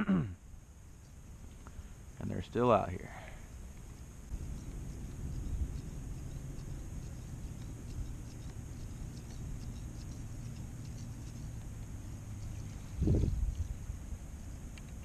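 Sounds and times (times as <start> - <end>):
faint scattered ticks: 0.1 - 15.0
wind rumbling on microphone: 4.2 - 15.0.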